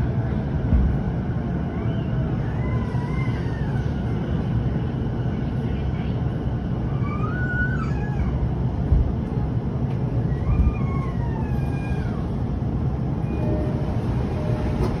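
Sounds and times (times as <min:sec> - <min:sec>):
train car low rumble: 0:00.0 - 0:15.0
high gliding squeals: 0:13.1 - 0:15.0.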